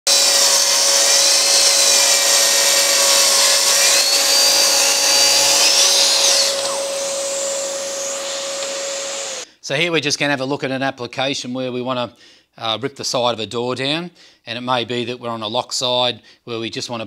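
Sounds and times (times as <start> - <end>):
track saw cutting wood: 0.0 - 9.5
dust extractor running: 0.1 - 9.4.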